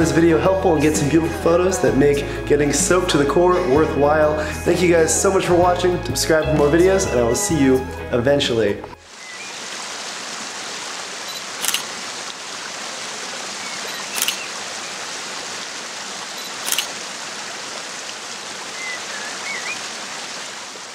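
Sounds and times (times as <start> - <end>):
running water hiss: 9.0 - 20.9
camera shutter clicking: 11.6 - 11.9, 14.0 - 14.5, 16.4 - 16.9.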